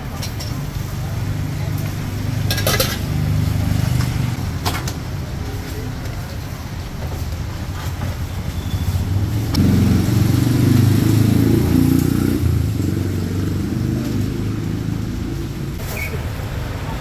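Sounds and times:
street traffic rumble: 0.0 - 17.0
vehicle engine running close by: 0.9 - 4.4, 9.0 - 15.8.

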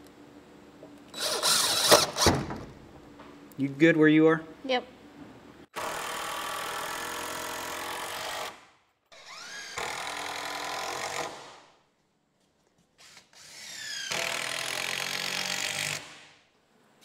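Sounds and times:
cordless drill drilling into wood: 1.2 - 2.3, 9.2 - 11.4, 13.4 - 16.0.

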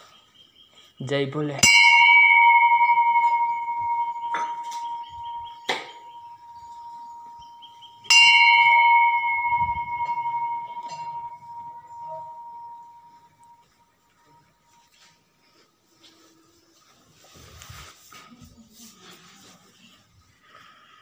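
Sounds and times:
bell clapper knocks: 1.6 - 6.8, 8.1 - 13.5
brass bell ringing: 1.6 - 15.0.

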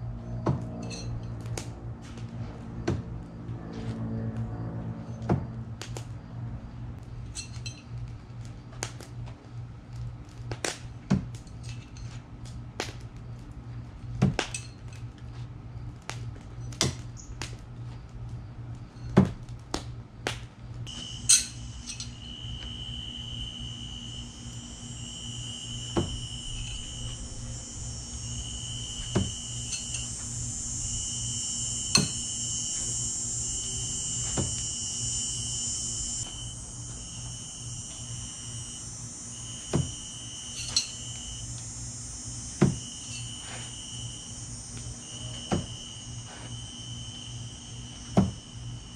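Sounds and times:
low steady hum: 0.0 - 48.9
insect chorus buzzing: 20.8 - 48.9.

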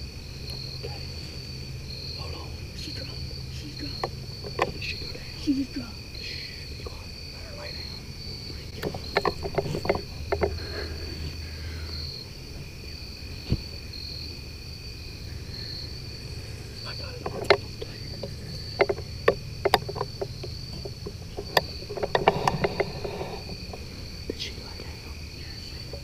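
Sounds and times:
crickets chirping: 0.0 - 26.0
gear clicks and knocks: 3.8 - 5.1, 8.8 - 10.9, 17.2 - 23.8.

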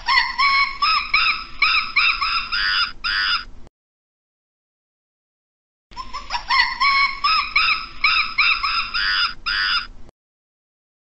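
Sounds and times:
primate calling: 0.0 - 3.5, 6.0 - 10.0.

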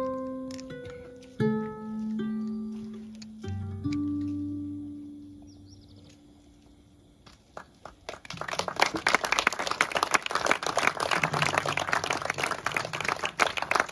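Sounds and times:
audience applause: 7.6 - 13.9.

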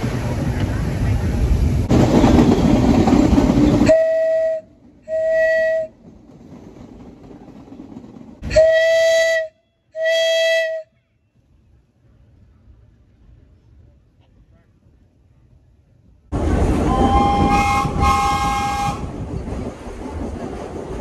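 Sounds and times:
subway train running: 0.0 - 21.0
subway train horn blasts: 3.8 - 6.0, 8.4 - 11.2, 16.8 - 19.1.

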